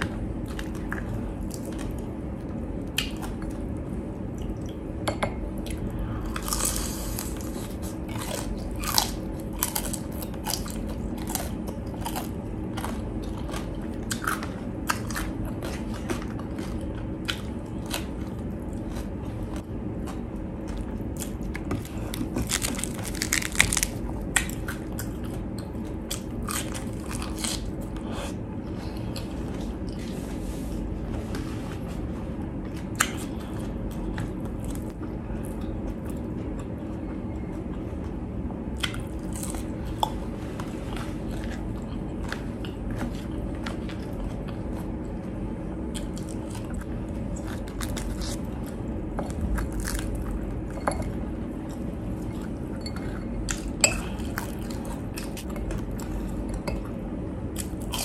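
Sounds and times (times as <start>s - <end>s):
low hum: 0.0s - 58.0s
crunching crispy fried pork: 5.8s - 27.9s, 38.7s - 40.4s, 41.0s - 50.7s.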